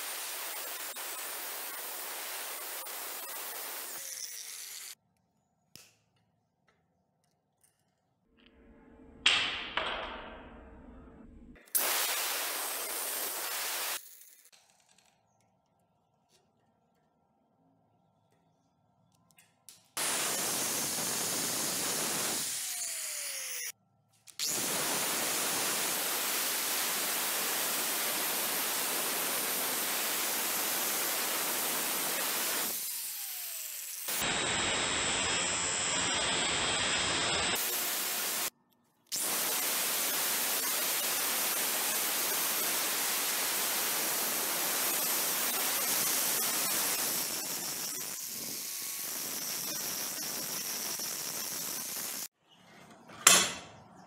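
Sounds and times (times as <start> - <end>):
angle grinder grinding metal: 0.0 - 5.0, 20.0 - 23.7, 39.2 - 52.3.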